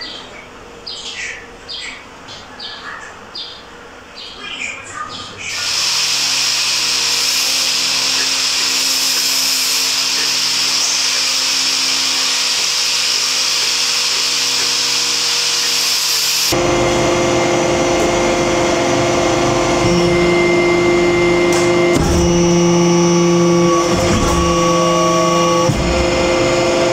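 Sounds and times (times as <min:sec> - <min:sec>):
power tool whirring: 0:05.5 - 0:26.9
metal-forming press humming: 0:16.5 - 0:26.9.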